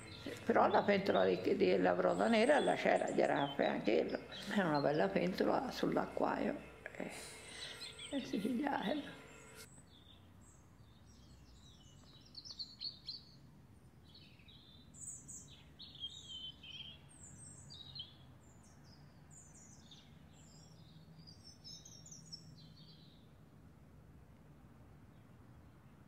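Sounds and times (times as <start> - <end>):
faint steady low hum: 0.0 - 9.8
songbirds chirping and singing: 0.0 - 23.3.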